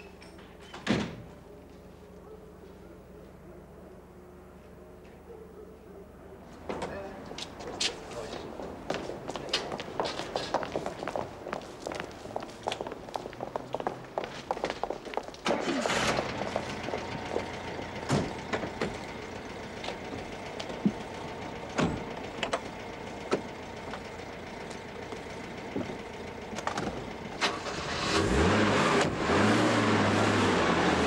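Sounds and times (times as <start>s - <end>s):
car engine starting and running: 15.4s - 31.0s.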